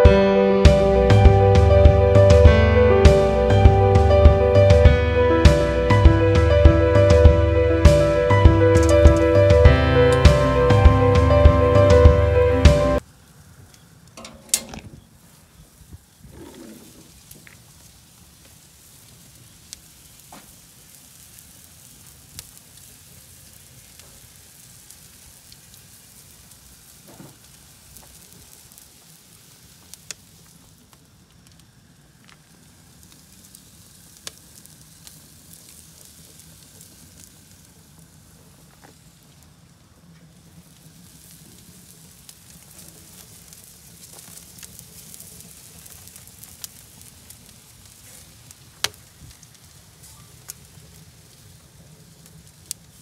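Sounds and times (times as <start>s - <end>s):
burning wood crackling: 0.0s - 53.0s
food sizzling on a grill: 13.0s - 53.0s.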